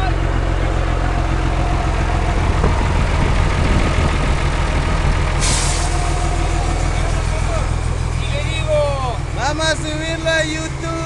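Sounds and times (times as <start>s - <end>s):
diesel truck engine idling: 0.0s - 11.0s
air brake hiss: 5.4s - 6.2s.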